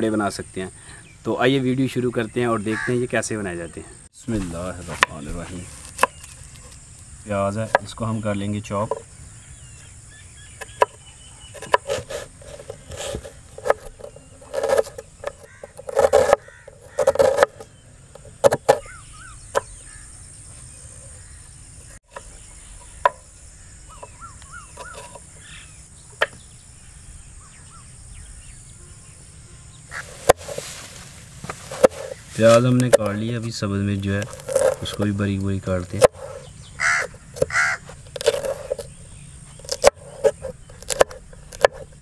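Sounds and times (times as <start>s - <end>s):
birds calling: 0.0s - 42.0s
knife chopping on wooden board: 11.6s - 17.6s, 39.6s - 41.8s.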